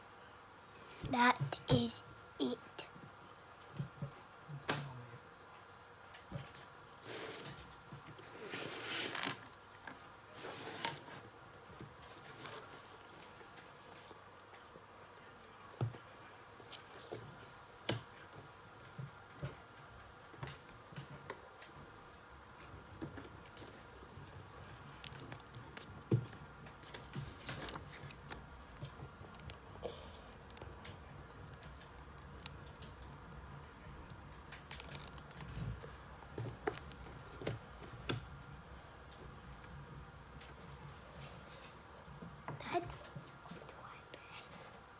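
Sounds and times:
paper rustling and scraping: 0:08.2 - 0:09.5.

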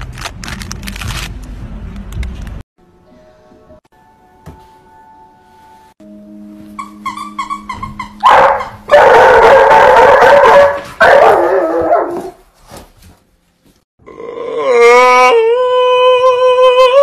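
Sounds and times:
dog yipping: 0:06.8 - 0:12.3.

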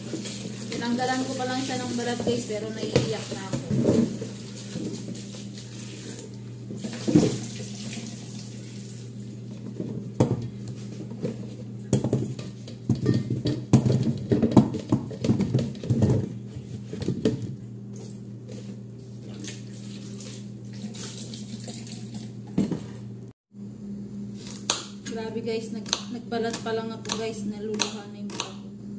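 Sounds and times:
tap water running: 0:00.0 - 0:09.3, 0:19.2 - 0:23.1.

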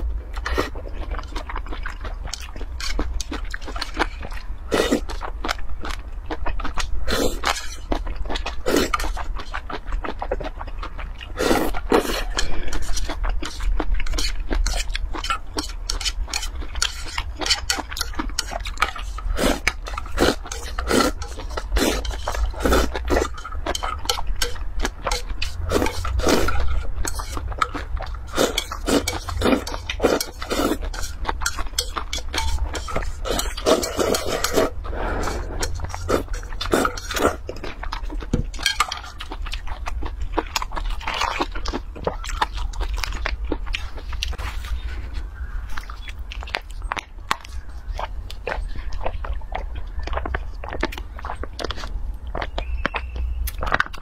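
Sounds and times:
slurping and chewing noodles: 0:00.0 - 0:54.0
chopsticks scraping metal bowl: 0:02.8 - 0:04.2, 0:07.4 - 0:08.0, 0:11.9 - 0:39.3
drinking sauce from bowl: 0:11.4 - 0:37.8.

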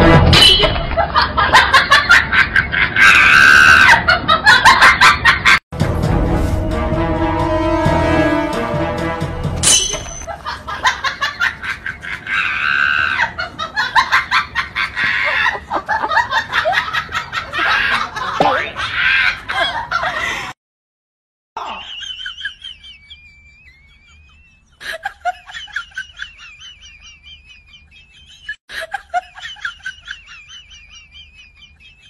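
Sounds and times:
music: 0:00.0 - 0:00.4, 0:05.8 - 0:10.1.

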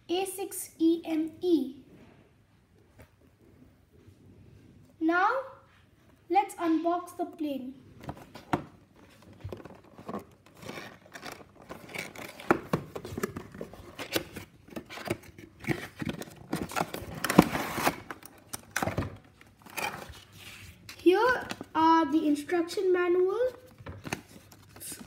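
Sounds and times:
packaging rustling: 0:08.0 - 0:21.7.

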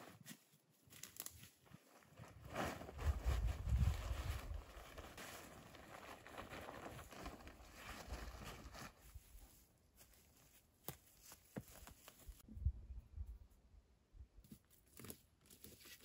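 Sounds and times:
rustling of handled material: 0:00.0 - 0:12.5.

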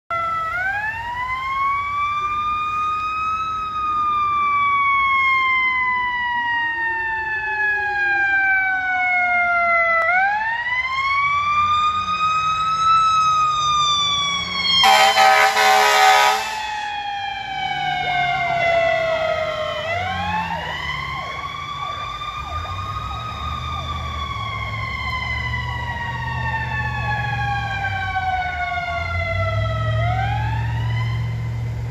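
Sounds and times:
deep low siren rumble: 0:00.1 - 0:31.9
siren wailing: 0:00.1 - 0:31.9
air horn blast: 0:14.8 - 0:16.9.

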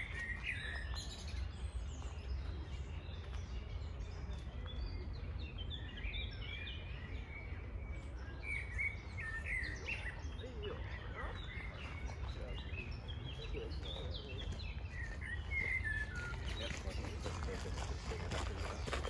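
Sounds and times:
songbirds chirping and singing: 0:00.0 - 0:19.0.

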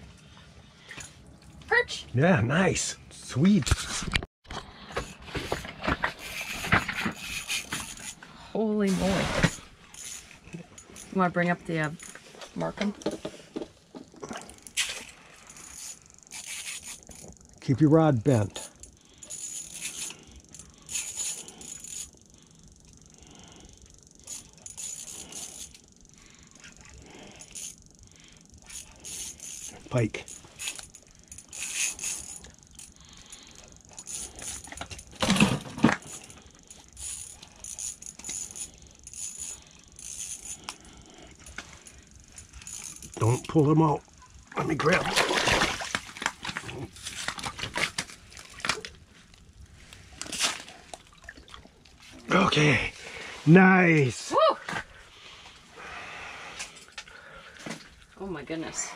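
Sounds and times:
fishing reel buzzing: 0:05.0 - 0:08.9, 0:09.5 - 0:12.7, 0:14.3 - 0:51.0
fish splashing in slush: 0:44.9 - 0:48.8.

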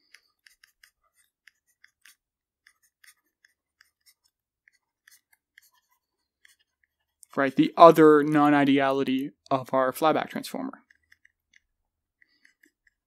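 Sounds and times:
stylus tapping on tablet screen: 0:00.0 - 0:07.3, 0:10.8 - 0:13.0.

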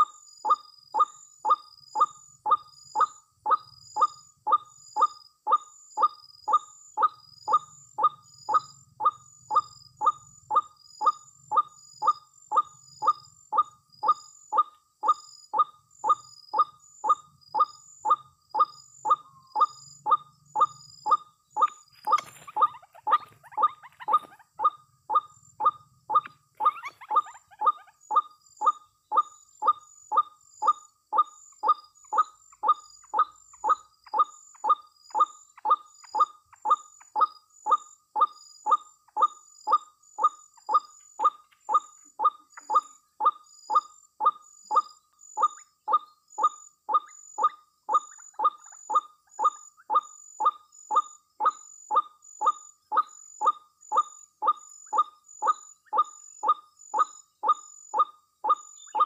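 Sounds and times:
waterhen calling: 0:22.1 - 0:24.5.

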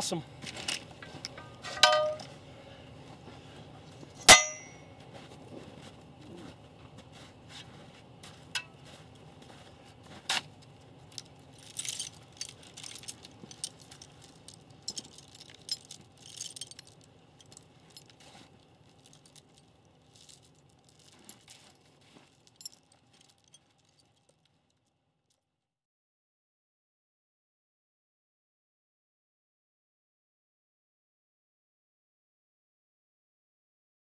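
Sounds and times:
steel chain clinking and rattling: 0:00.5 - 0:02.3, 0:04.2 - 0:04.9, 0:11.0 - 0:24.8.

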